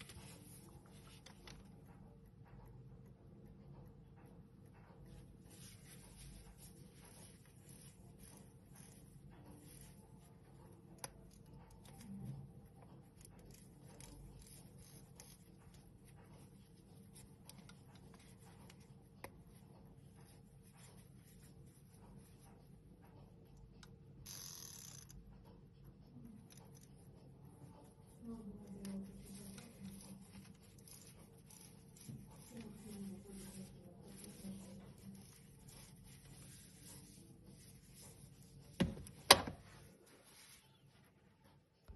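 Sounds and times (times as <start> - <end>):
low steady hum: 0.0 - 41.9
gloved hands rubbing: 5.2 - 12.1, 13.0 - 22.9, 27.6 - 41.2.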